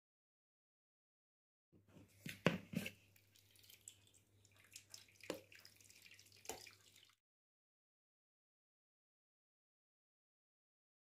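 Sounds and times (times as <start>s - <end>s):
liquid dripping and splashing: 2.3s - 7.2s.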